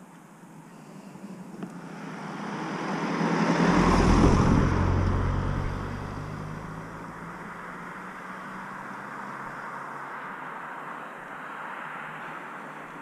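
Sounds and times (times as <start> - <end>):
vehicle driving past: 1.7 - 10.8.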